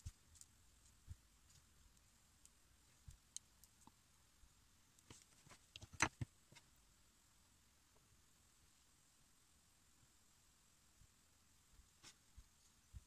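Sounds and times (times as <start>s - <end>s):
small sharp clicks and taps: 5.0s - 6.6s.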